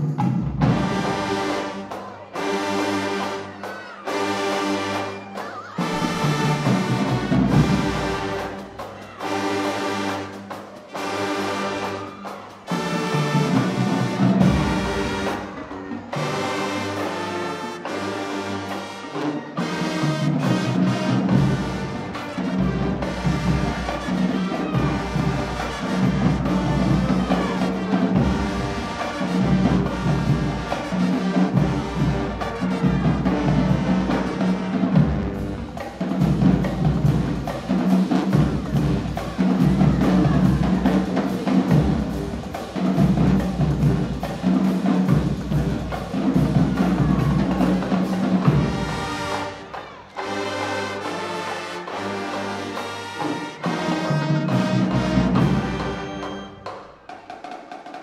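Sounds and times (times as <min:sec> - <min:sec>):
marching band playing: 0:00.0 - 0:58.0
drumline low beat: 0:19.1 - 0:51.1.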